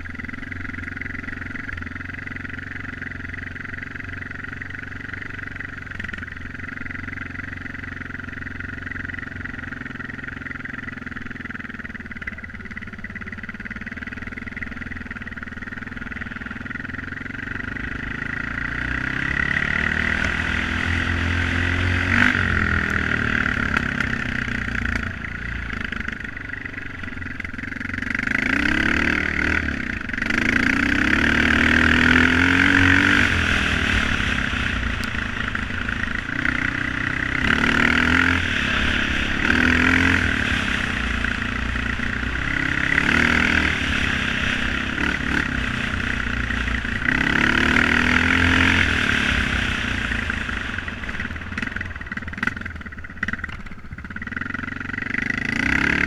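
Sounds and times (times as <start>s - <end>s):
dirt bike engine revving: 16.0s - 56.0s.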